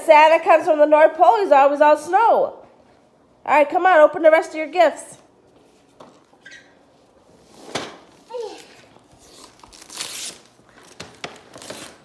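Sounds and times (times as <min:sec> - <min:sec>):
wrapping paper rustling: 0:08.3 - 0:12.0.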